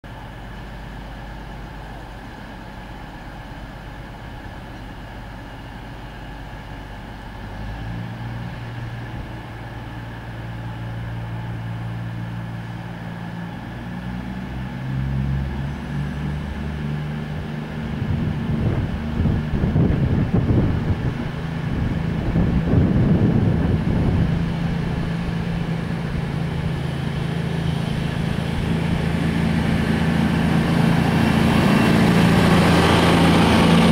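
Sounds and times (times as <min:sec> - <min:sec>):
diesel train engine pulling away: 0:00.0 - 0:33.9.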